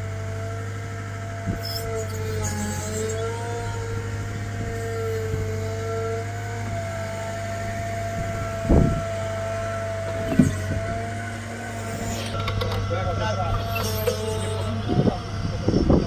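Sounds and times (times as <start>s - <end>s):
diesel engine running: 0.0s - 16.0s
hydraulic whine: 0.0s - 16.0s.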